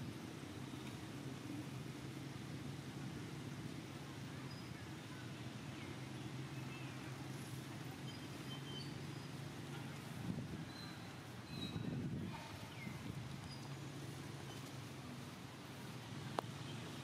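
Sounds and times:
faint hiss: 0:00.0 - 0:17.0
faint high chirps: 0:07.8 - 0:09.4.

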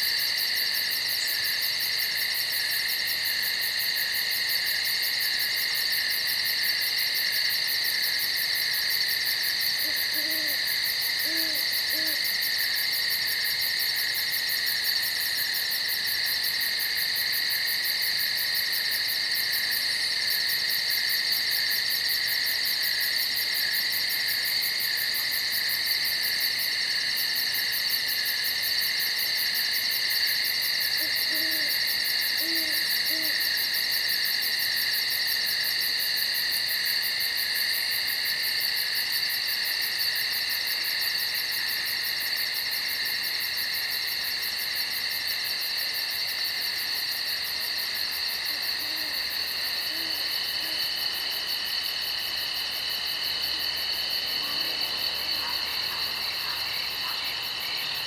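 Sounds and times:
night insects chorus: 0:00.0 - 0:58.0
faint low owl hoots: 0:09.8 - 0:12.4, 0:31.0 - 0:33.5, 0:48.5 - 0:51.2.

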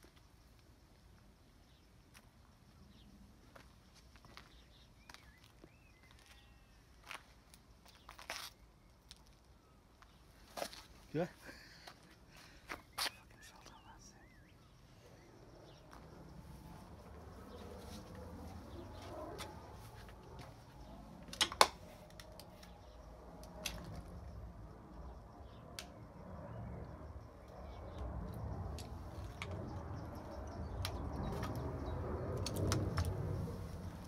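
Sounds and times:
footsteps on concrete and debris: 0:03.5 - 0:09.4.

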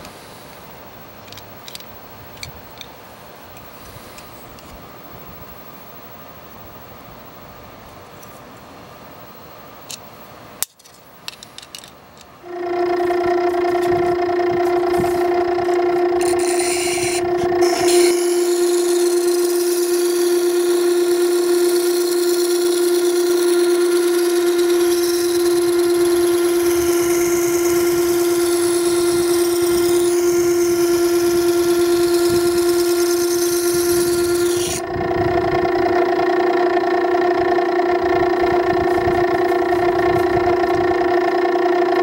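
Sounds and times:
sharpener motor hum: 0:12.4 - 0:42.0
steel blade grinding hiss: 0:16.2 - 0:34.8.

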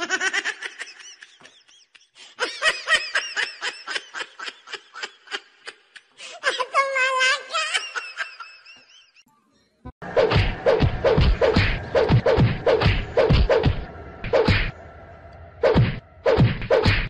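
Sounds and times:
high-pitched cartoon laughter: 0:00.0 - 0:09.2.

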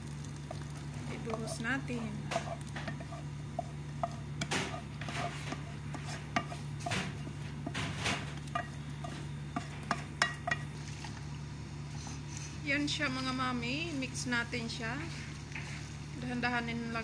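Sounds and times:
steady low hum: 0:00.0 - 0:17.0
spatula scraping metal pot: 0:01.2 - 0:07.1.

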